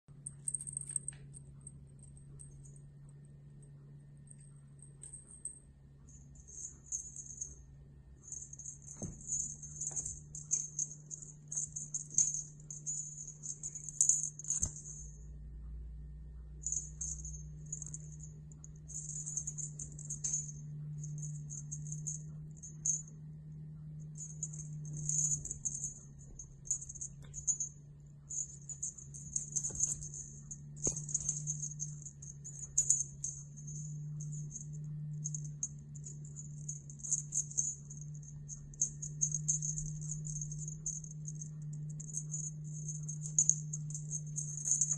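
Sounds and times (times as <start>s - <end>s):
steady low hum: 0.0s - 44.9s
bell toy jingling: 6.1s - 7.6s, 8.2s - 15.2s, 16.6s - 23.1s, 24.2s - 44.9s.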